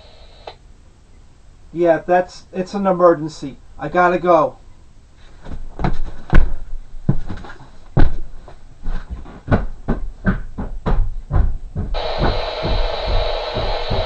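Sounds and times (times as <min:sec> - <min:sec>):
heavy footsteps thudding: 0:05.3 - 0:14.0
steady rushing noise: 0:11.9 - 0:14.0.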